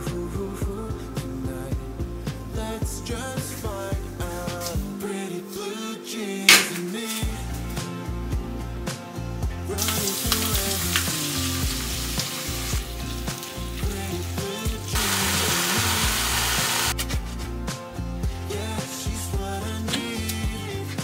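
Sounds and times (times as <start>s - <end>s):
background music: 0.0s - 21.0s
loud even hiss: 15.0s - 17.0s.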